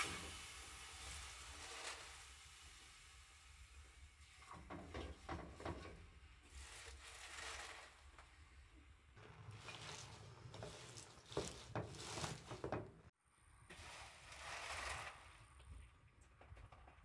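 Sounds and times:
spinach leaves rustling and crunching: 0:09.4 - 0:12.6.

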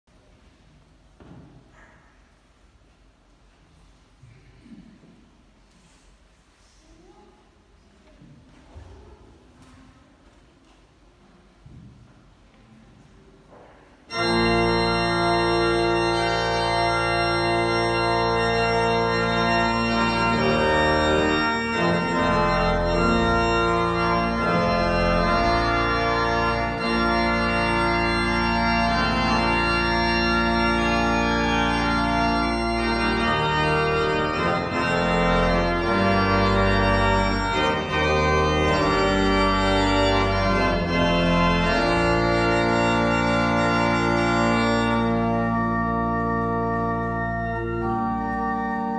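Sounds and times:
church pipe organ chords: 0:14.0 - 0:48.9.

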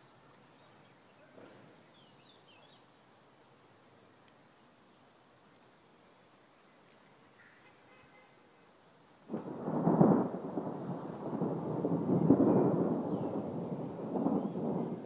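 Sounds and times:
thunder clap and rumble: 0:09.3 - 0:15.0.

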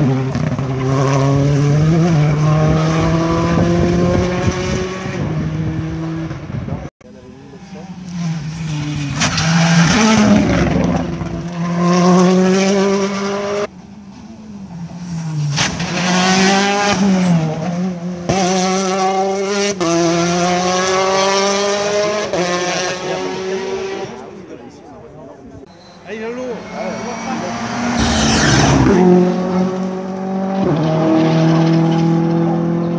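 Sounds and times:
rally car engines revving: 0:00.0 - 0:32.9
car accelerating past: 0:26.4 - 0:32.9.

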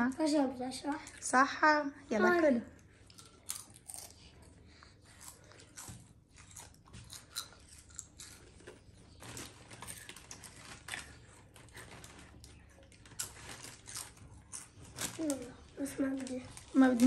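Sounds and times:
children crunching crisps: 0:02.8 - 0:17.0.

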